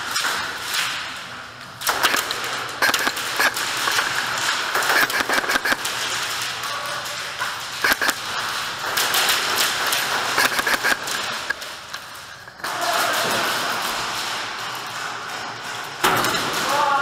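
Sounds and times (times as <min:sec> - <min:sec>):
steady noisy background: 0:00.0 - 0:17.0.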